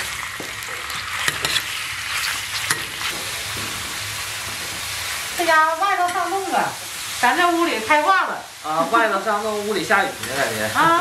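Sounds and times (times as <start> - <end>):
meat sizzling in a wok: 0.0 - 11.0
metal ladle scraping wok: 0.8 - 4.3.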